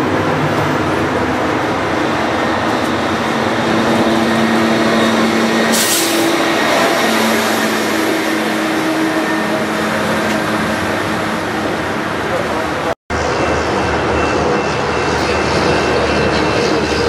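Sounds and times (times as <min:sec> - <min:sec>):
diesel engine drone: 0:00.0 - 0:17.0
sharp hiss of air: 0:05.7 - 0:06.4.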